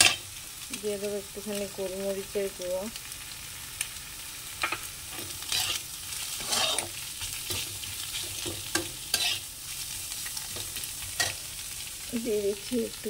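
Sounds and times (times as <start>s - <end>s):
spatula scraping wok: 0.0s - 0.4s, 4.7s - 11.9s
vegetables sizzling in oil: 0.0s - 13.0s.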